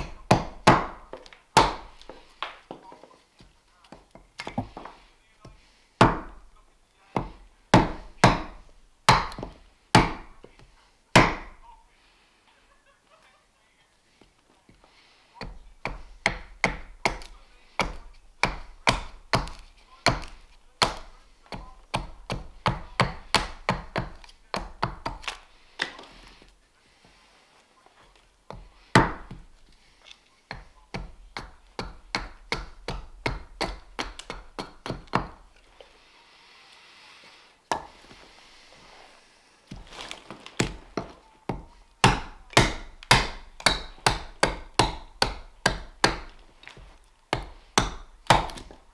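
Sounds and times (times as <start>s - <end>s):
axe chopping wood: 0.0s - 2.6s, 3.9s - 6.4s, 7.2s - 11.6s, 15.4s - 26.0s, 28.5s - 29.5s, 30.5s - 35.5s, 39.7s - 48.9s.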